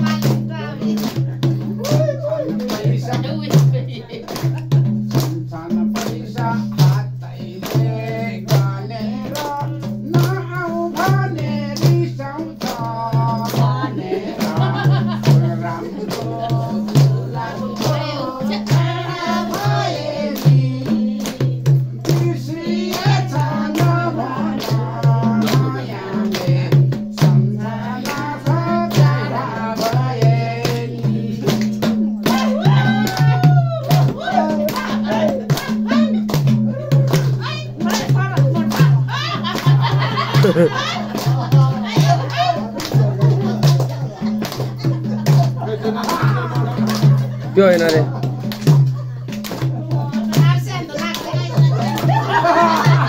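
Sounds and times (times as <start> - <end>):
steady drum beat: 0.0 - 53.0
person singing: 5.3 - 44.4, 49.7 - 53.0.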